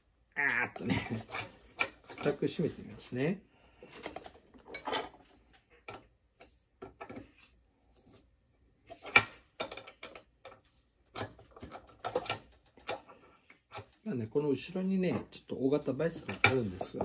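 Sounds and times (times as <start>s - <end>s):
bench vise metal clicks and knocks: 1.2s - 2.4s, 8.9s - 13.9s.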